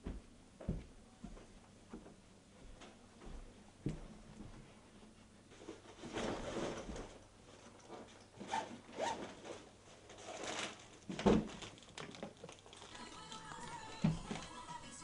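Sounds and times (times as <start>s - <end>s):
cloth and nylon rustling: 5.5s - 13.1s
chip bag crinkling: 10.3s - 14.9s.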